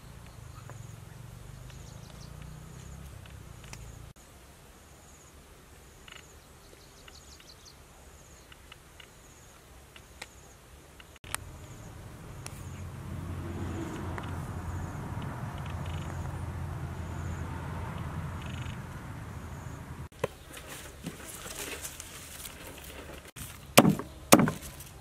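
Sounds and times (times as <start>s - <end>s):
insects chirping in trills: 4.8s - 20.1s.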